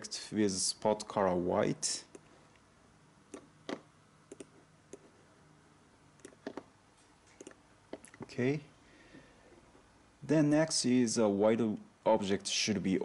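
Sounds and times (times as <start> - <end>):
computer mouse clicking: 3.3 - 5.1, 6.2 - 6.7, 7.3 - 8.0.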